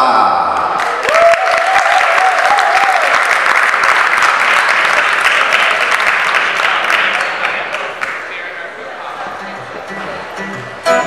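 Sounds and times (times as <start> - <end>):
audience applauding: 0.6 - 8.5.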